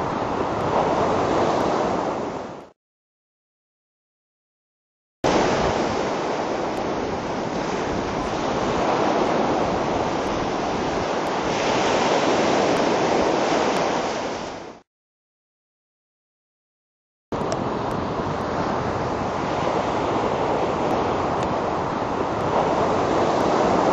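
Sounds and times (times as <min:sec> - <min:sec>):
beach surf rushing: 0:00.0 - 0:02.7, 0:05.3 - 0:14.8, 0:17.4 - 0:23.9
wind: 0:00.0 - 0:02.7, 0:05.2 - 0:14.8, 0:17.3 - 0:23.9.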